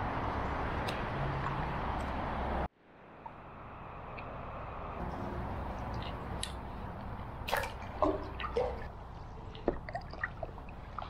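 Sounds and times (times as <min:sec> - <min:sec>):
low steady rumble: 0:03.0 - 0:11.0
paddle splashing in water: 0:07.3 - 0:11.0.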